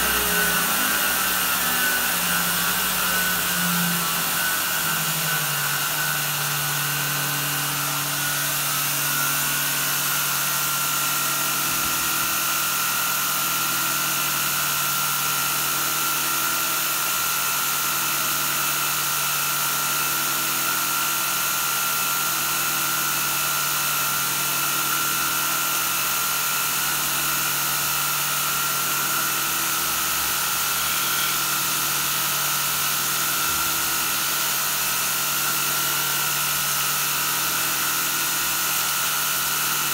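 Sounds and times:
belt grinder motor hum and whine: 0:00.0 - 0:39.9.

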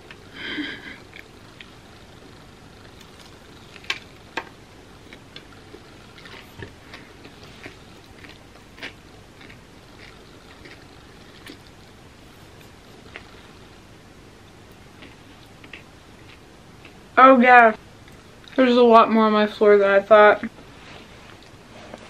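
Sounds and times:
crunching while chewing: 0:05.0 - 0:13.6, 0:14.7 - 0:17.0.

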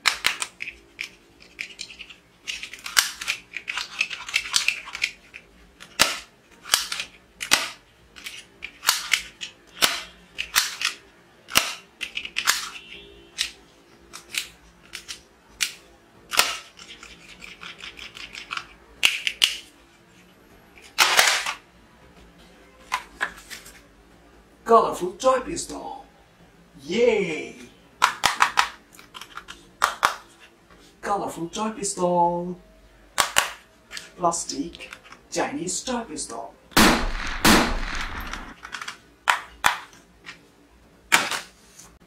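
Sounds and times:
plastic toy guns clattering: 0:00.0 - 0:19.7, 0:20.9 - 0:21.6, 0:28.0 - 0:30.2, 0:37.1 - 0:40.0, 0:41.1 - 0:41.5.

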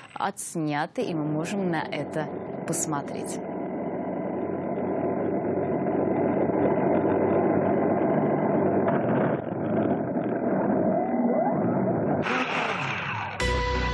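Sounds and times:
drone motors whining: 0:01.3 - 0:13.4
drone propellers buzzing: 0:01.4 - 0:13.4.

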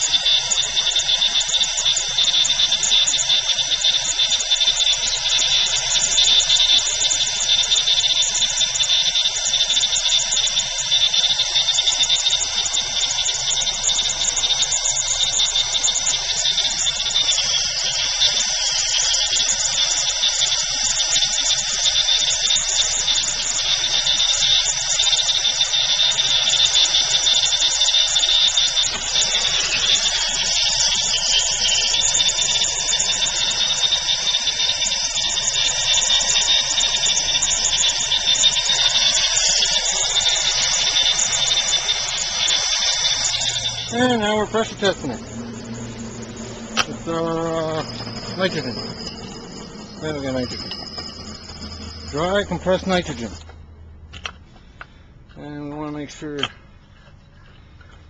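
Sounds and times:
torch flame hissing: 0:00.0 - 0:53.4.

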